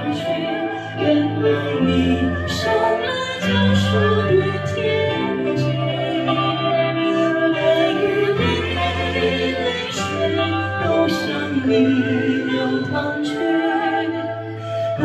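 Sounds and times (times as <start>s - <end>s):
keyboard accompaniment: 0.0s - 15.0s
man singing with vibrato: 0.0s - 15.0s
steady bass line: 0.0s - 15.0s.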